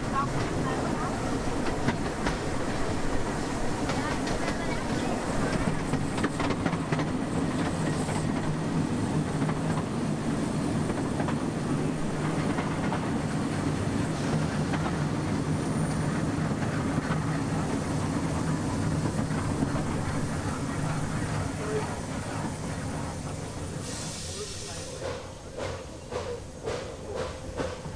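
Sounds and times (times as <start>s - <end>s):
clickety-clack over rail joints: 0.0s - 27.9s
train wheels rolling on rails: 0.0s - 27.9s.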